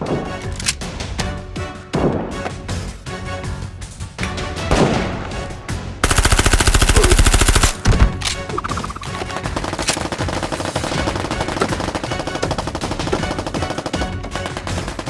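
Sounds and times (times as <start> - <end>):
background music: 0.0 - 15.0
toy blaster rapid automatic fire: 6.0 - 7.8.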